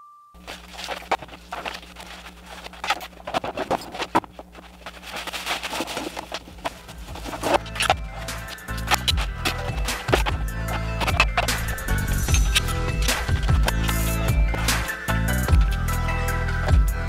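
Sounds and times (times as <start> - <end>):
steady low hum: 0.4 - 17.0
tools clattering and knocking: 0.5 - 14.7
low music: 6.9 - 17.0.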